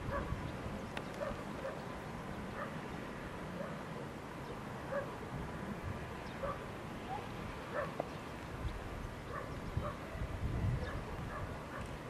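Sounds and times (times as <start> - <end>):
low outdoor background: 0.0 - 12.0
faint dog barking: 0.1 - 0.4, 1.2 - 1.9, 2.5 - 2.8, 3.6 - 4.1, 4.9 - 5.2, 6.4 - 8.1, 9.3 - 12.0.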